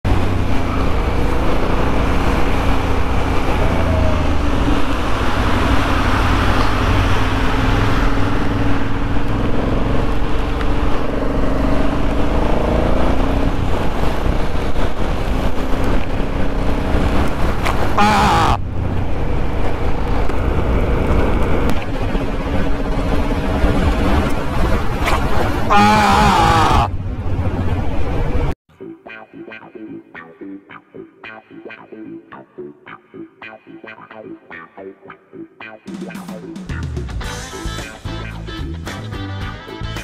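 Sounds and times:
steady wind: 0:00.0 - 0:28.6
motorcycle engine running: 0:00.1 - 0:28.5.

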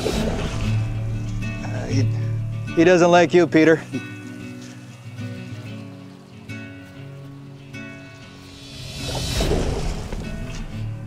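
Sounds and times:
background music: 0:00.0 - 0:11.0
fish thrashing water splashing: 0:08.8 - 0:10.5.

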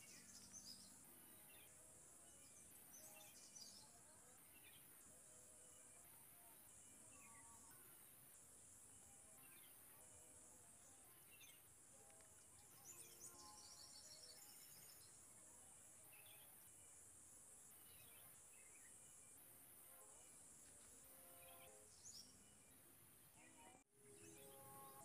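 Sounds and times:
high insect buzz: 0:00.0 - 0:25.0.

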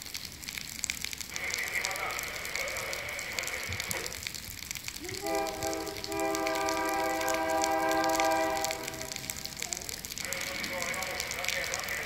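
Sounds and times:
locomotive air horn chord: 0:05.2 - 0:09.2.

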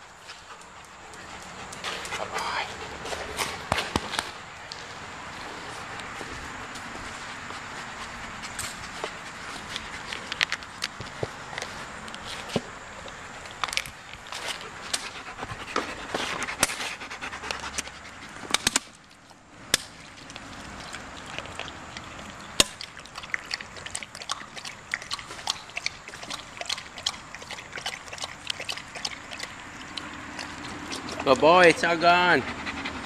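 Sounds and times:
dog lapping water: 0:19.9 - 0:33.0.

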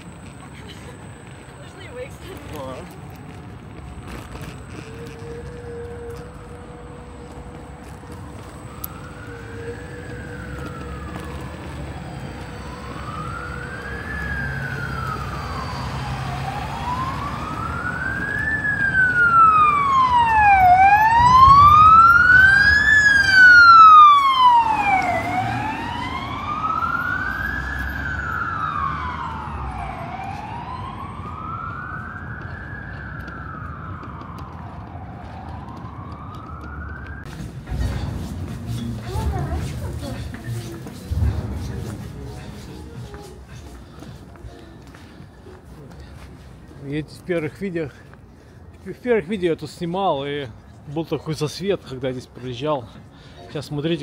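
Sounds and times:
emergency siren wailing: 0:00.0 - 0:38.1.

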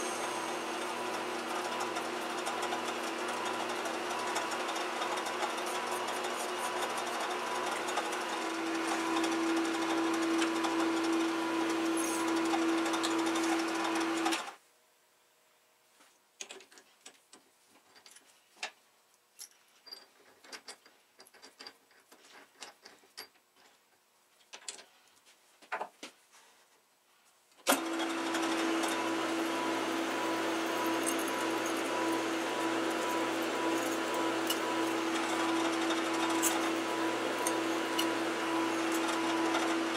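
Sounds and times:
drill cutting metal shaft: 0:00.0 - 0:14.4, 0:27.7 - 0:39.9
metal lathe motor hum: 0:00.0 - 0:14.5, 0:27.7 - 0:39.9
tools clicking and knocking: 0:16.4 - 0:18.8, 0:19.4 - 0:24.9.

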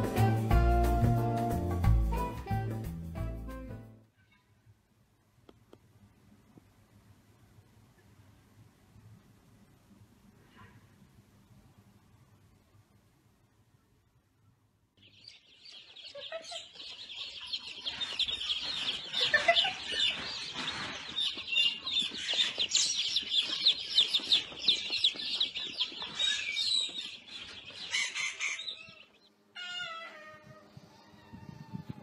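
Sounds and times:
baby chicks peeping: 0:15.0 - 0:32.0.

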